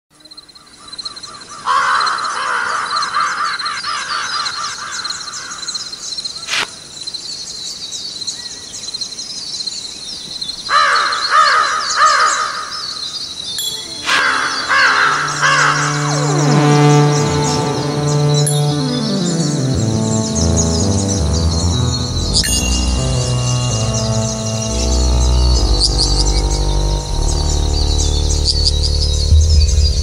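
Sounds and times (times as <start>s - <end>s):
low musical drone: 13.6s - 30.0s.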